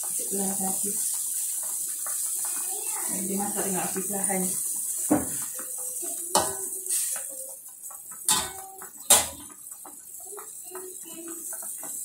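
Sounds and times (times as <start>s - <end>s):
metal spatula clanking on wok: 6.3s - 7.1s, 8.3s - 9.5s.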